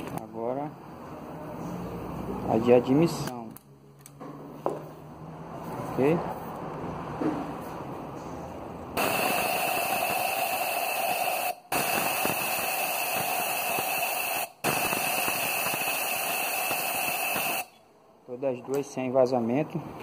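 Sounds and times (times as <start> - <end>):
air blow gun hissing: 9.0 - 17.7
air whistle: 9.0 - 17.8.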